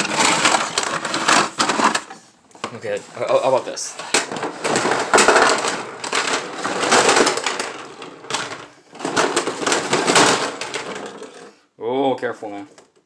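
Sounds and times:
packaging rustling: 0.0 - 11.4
plastic toy pieces clattering: 0.0 - 11.6.

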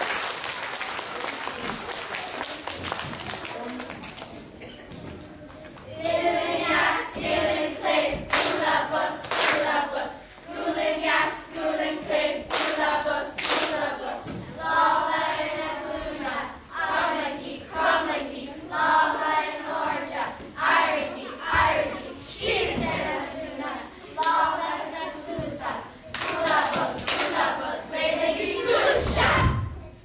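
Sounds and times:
children singing in unison: 5.9 - 29.7
hand claps: 8.3 - 8.6, 12.5 - 13.8, 26.1 - 27.4.

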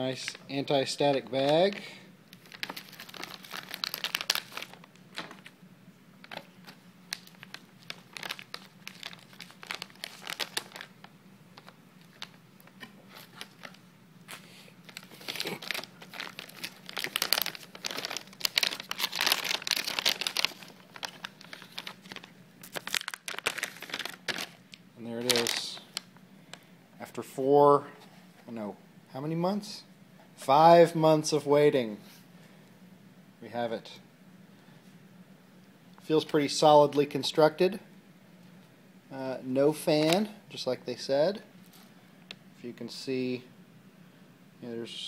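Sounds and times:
plastic packing crinkling: 1.0 - 5.6, 6.2 - 26.6.

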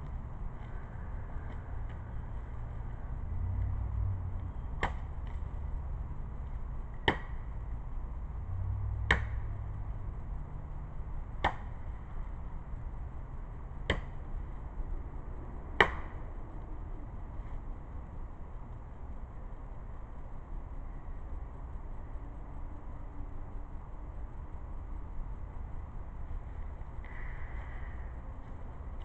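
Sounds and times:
sword blade chopping wood: 4.8 - 5.1, 7.0 - 7.4, 9.1 - 9.4, 11.4 - 11.7, 15.8 - 16.1.

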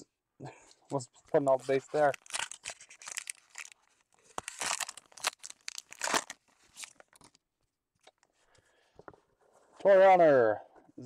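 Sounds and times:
card pack wrapper tearing: 1.6 - 7.4.

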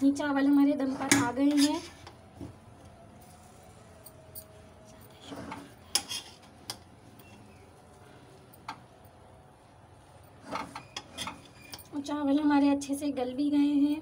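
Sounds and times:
metal spatula scraping rice: 5.3 - 6.5.

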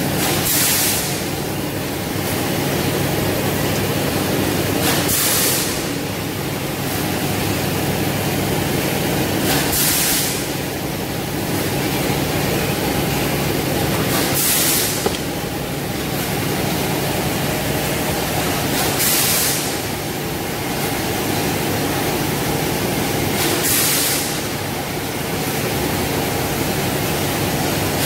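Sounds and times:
factory machinery hum: 0.0 - 28.0
air hiss bursts: 9.5 - 10.6.

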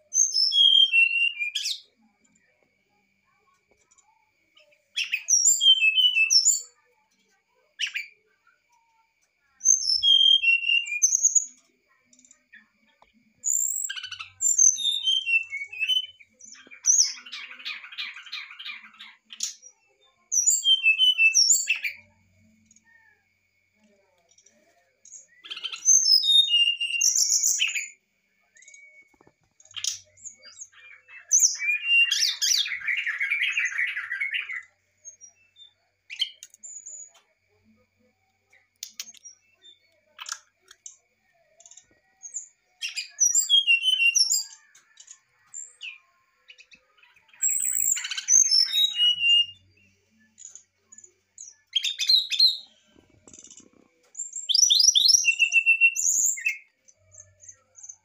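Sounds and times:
bird singing fluting song: 0.0 - 1.9, 5.0 - 6.7, 9.6 - 11.6, 13.4 - 22.1, 25.1 - 28.0, 28.6 - 37.1, 41.6 - 45.1, 46.6 - 49.8, 51.4 - 56.7.

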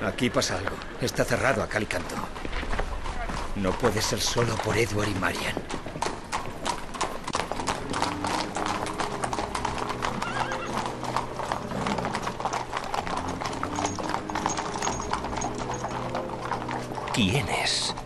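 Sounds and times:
horse hooves clip-clopping: 0.0 - 18.0
horse whinnying: 7.2 - 17.2.

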